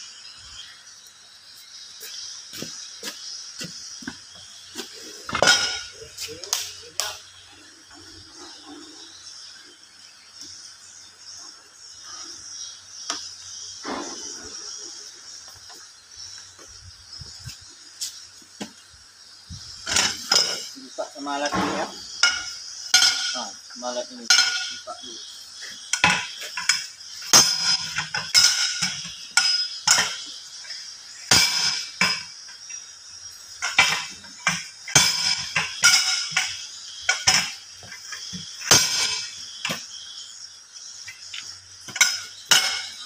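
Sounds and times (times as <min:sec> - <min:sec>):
steel bar clanking on wheel rim: 0:25.9 - 0:30.3, 0:33.6 - 0:39.9, 0:41.3 - 0:43.0.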